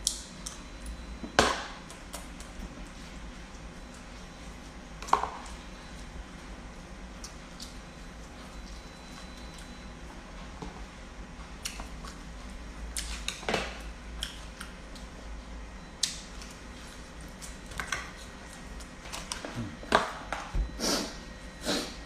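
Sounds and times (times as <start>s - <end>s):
chewing and lip smacking: 7.2s - 9.8s, 14.2s - 15.2s.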